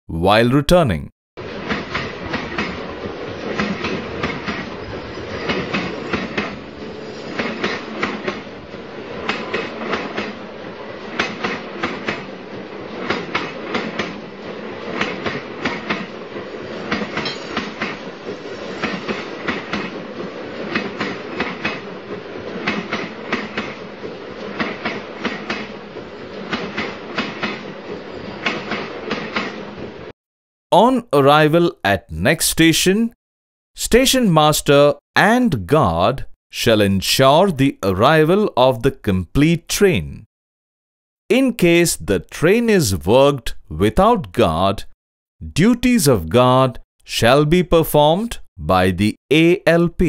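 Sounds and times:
train rolling rumble: 1.4s - 30.1s
train wheels clicking over rail joints: 1.4s - 30.1s.

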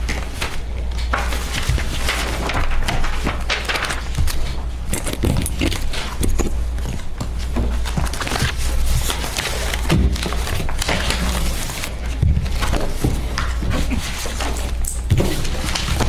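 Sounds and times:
paper rustling and shuffling: 0.0s - 16.0s
steady low hum: 0.0s - 16.0s.

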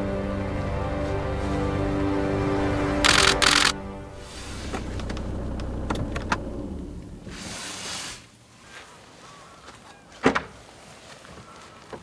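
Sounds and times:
low rumble: 0.0s - 7.6s
sharp clicks: 3.0s - 3.8s
rustling swish: 4.1s - 5.0s, 7.2s - 9.6s.

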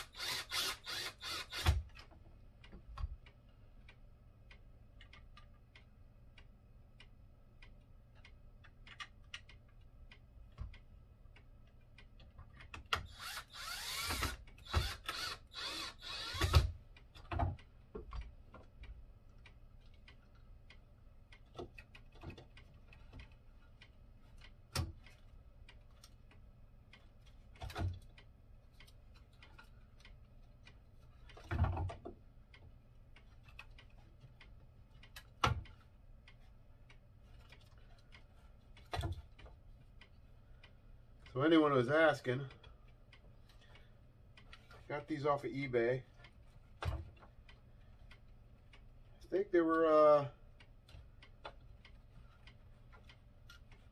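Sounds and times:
cordless drill driving screws: 0.0s - 1.9s, 13.0s - 16.7s.

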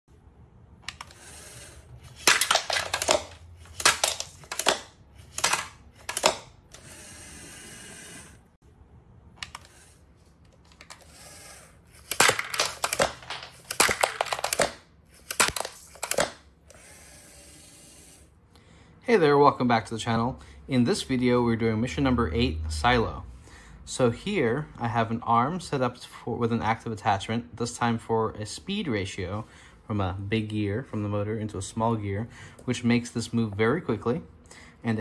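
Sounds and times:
small motors whirring: 0.9s - 2.2s, 5.2s - 8.5s, 10.8s - 12.2s, 16.7s - 18.3s
plastic clattering and knocking: 12.1s - 14.8s.

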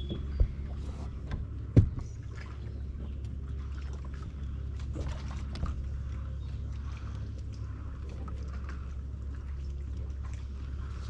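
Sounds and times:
knocks on boat: 0.0s - 2.2s
boat motor humming: 0.0s - 11.0s
water lapping against hull: 0.0s - 11.0s.

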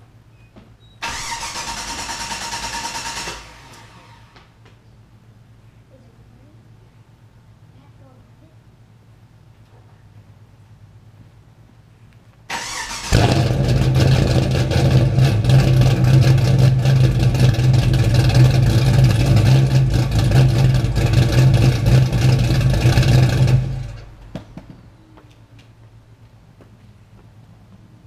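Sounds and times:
starter motor cranking: 1.0s - 4.0s, 12.5s - 14.2s
car engine running loudly: 13.1s - 24.3s.

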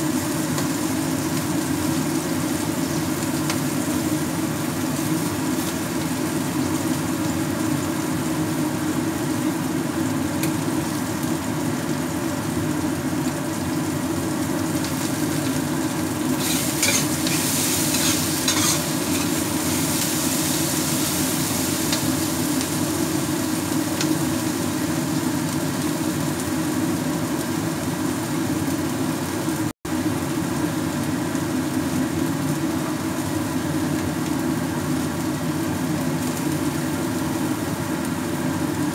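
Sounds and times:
food sizzling in a wok: 0.0s - 38.9s
metal spatula stirring: 16.4s - 20.5s.

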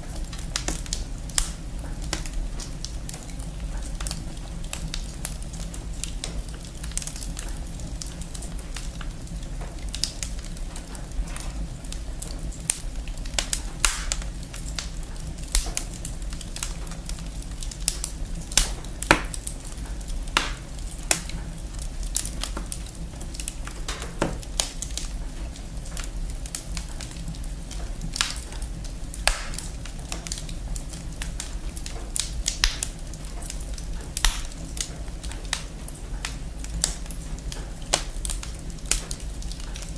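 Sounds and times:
wood fire crackling and popping: 0.0s - 39.9s.

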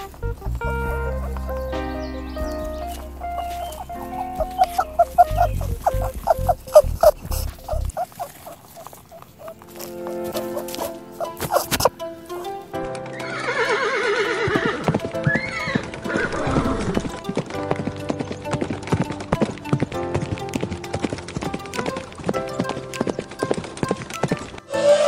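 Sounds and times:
background music: 0.0s - 25.0s
hooves clip-clopping: 0.0s - 25.0s
horse whinnying: 13.1s - 17.2s.

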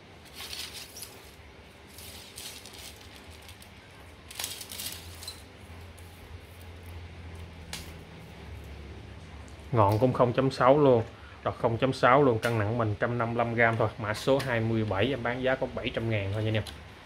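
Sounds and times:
low steady hum: 0.0s - 17.0s
fishing rod handling rustles: 0.2s - 6.9s.

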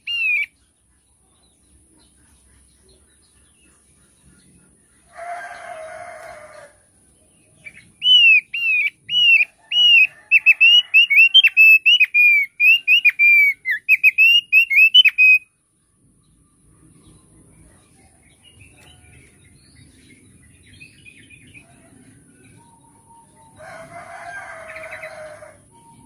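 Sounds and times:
bird whistling song: 0.0s - 0.6s, 7.6s - 15.5s.

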